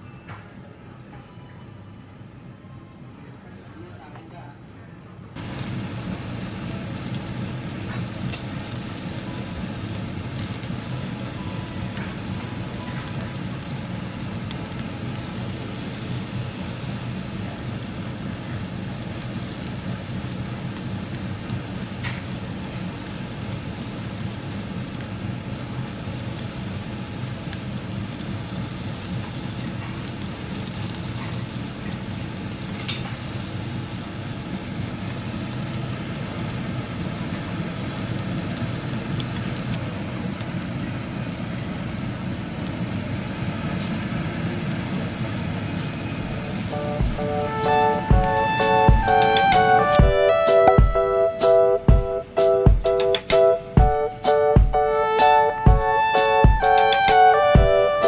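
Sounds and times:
beef sizzling on a grill: 5.4s - 50.7s.

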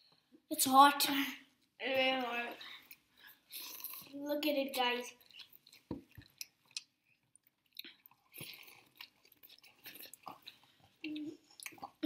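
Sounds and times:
chewing and slurping noodles: 5.2s - 12.0s.

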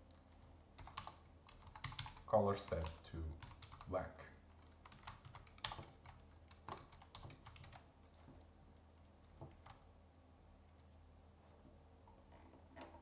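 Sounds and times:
computer keyboard key clicks: 0.8s - 2.2s, 4.6s - 7.8s.

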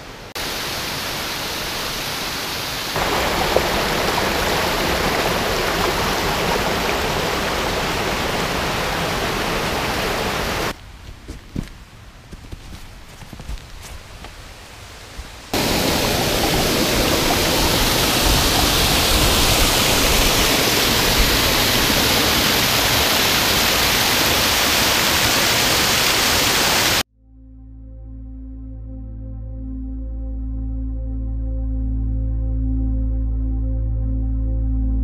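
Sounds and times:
waterfall rushing over boulders: 0.0s - 10.8s, 15.1s - 27.0s
soft ambient music: 27.2s - 35.0s.

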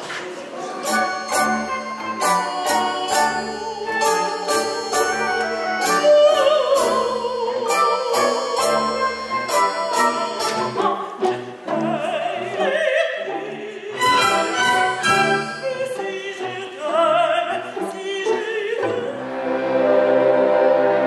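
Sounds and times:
operatic singing: 0.2s - 21.0s
orchestra playing: 0.6s - 21.0s
strings sustained chord: 19.1s - 21.0s.

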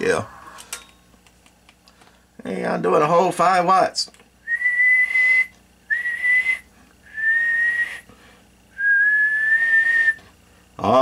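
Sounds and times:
man whistling high note: 4.5s - 8.1s, 8.8s - 10.2s.

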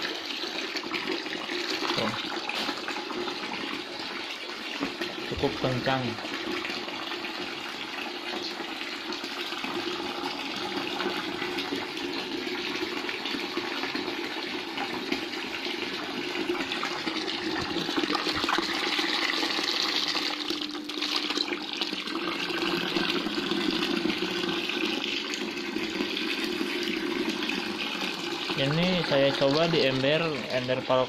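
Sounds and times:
water splashing into bucket: 0.0s - 31.0s.

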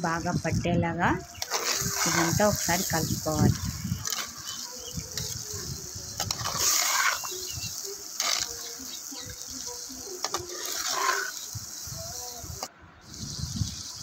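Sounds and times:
chicken sizzling in oil: 1.3s - 12.1s
spatula scraping clay pot: 6.2s - 7.5s.

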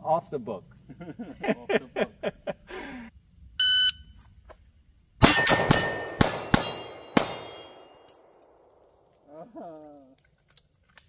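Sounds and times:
steel targets ringing: 5.2s - 8.4s
pistol shots: 5.2s - 9.0s.

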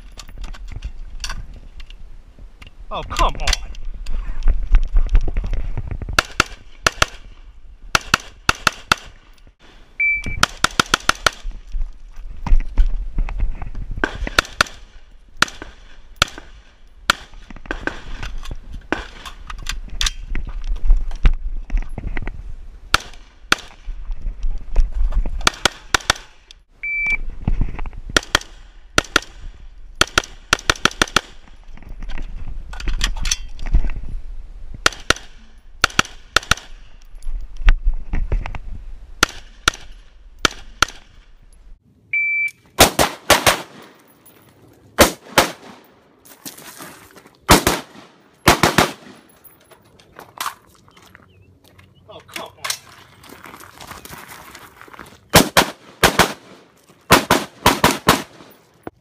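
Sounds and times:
rapid rifle shots: 47.5s - 49.2s, 55.4s - 58.5s.

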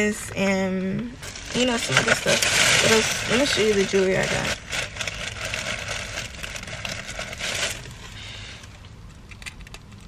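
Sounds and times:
plastic bag rustling: 1.2s - 8.8s.

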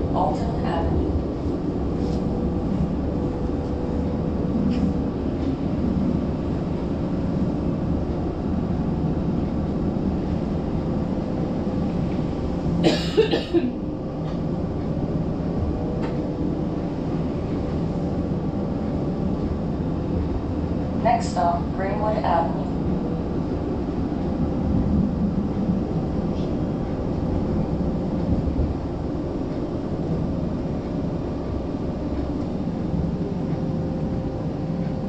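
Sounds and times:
streetcar rumbling: 0.0s - 35.0s
person coughing: 12.8s - 13.8s.

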